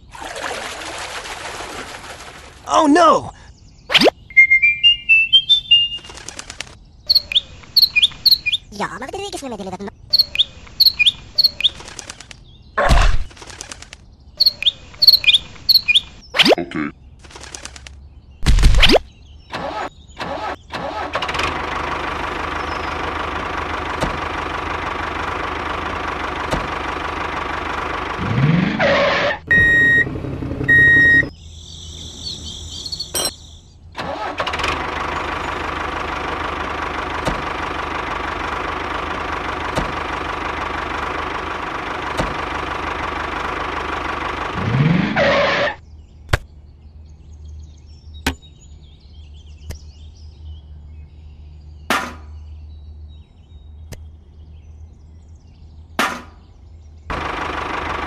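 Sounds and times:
short beeps: 0:04.3 - 0:06.1, 0:29.5 - 0:30.1, 0:30.7 - 0:31.3
tractor engine running: 0:04.3 - 0:08.6, 0:10.1 - 0:12.4, 0:13.4 - 0:16.3, 0:19.6 - 0:31.5, 0:34.0 - 0:45.8, 0:57.1 - 0:58.0.

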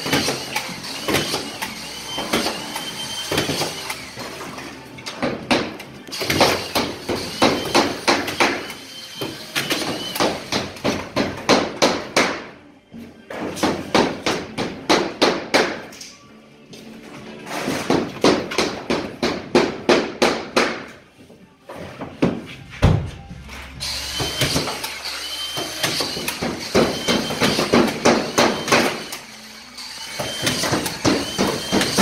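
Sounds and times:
hammer driving nails: 0:00.0 - 0:04.0, 0:05.0 - 0:12.5, 0:17.5 - 0:21.0, 0:24.1 - 0:29.2, 0:30.1 - 0:32.0.

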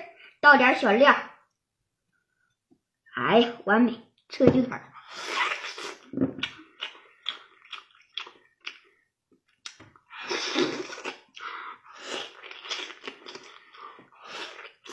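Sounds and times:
child chewing and mouth smacks: 0:05.4 - 0:14.9.

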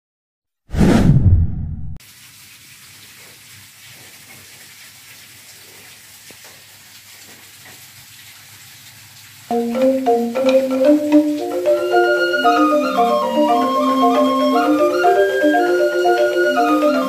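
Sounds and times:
loud intro sound effect: 0:00.7 - 0:02.0
low hum: 0:00.7 - 0:02.0
faint steady hiss: 0:02.0 - 0:17.0.

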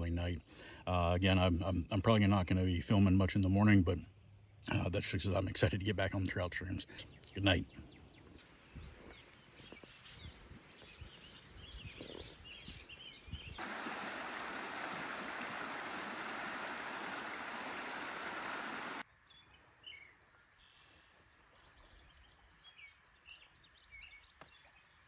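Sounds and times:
faint bird chirps: 0:06.9 - 0:13.9, 0:17.0 - 0:25.0
steady rushing noise: 0:13.6 - 0:19.0.

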